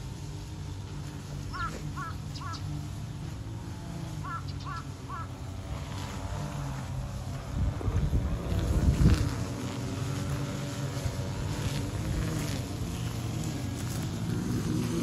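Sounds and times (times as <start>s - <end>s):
steady low hum: 0.0s - 15.0s
crow cawing: 1.5s - 2.6s, 4.2s - 5.3s.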